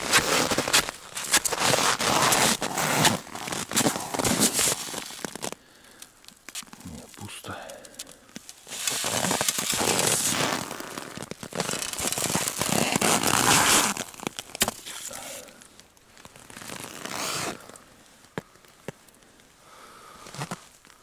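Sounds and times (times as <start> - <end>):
ice and snow crunching: 0.0 - 18.3, 20.0 - 21.0
jacket sleeve rustling: 8.6 - 14.1, 16.4 - 17.7.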